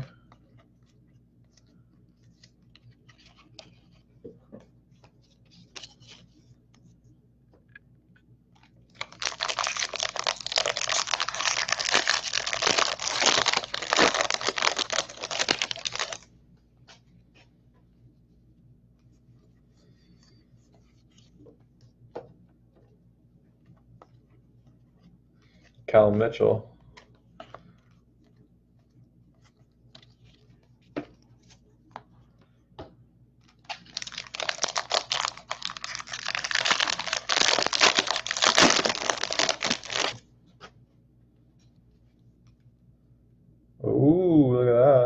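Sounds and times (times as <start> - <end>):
foil wrapper crackling: 9.0 - 16.3, 33.6 - 40.2.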